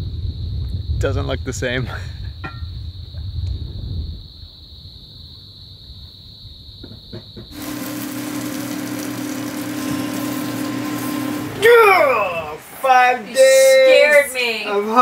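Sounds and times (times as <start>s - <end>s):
wind on microphone: 0.0s - 4.4s
cicadas droning: 0.0s - 15.0s
low hum: 7.6s - 12.9s.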